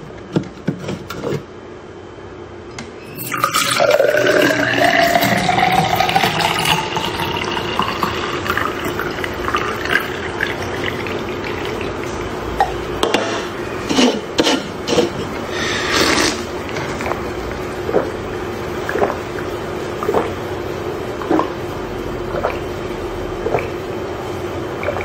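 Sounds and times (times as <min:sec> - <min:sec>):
fizzy drink pouring into glass: 0:03.1 - 0:12.2.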